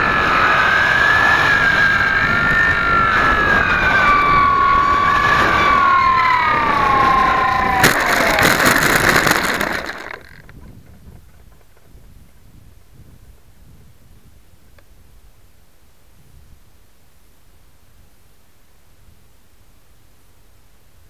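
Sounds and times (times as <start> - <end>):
model airplane motor whining: 0.0 - 11.9.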